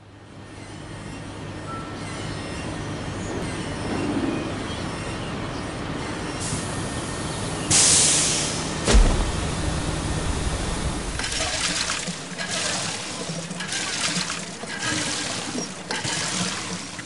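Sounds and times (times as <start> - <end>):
low machine hum and rumble: 2.4 - 17.0
loud hiss: 7.7 - 11.3
noisy wash: 8.8 - 17.0.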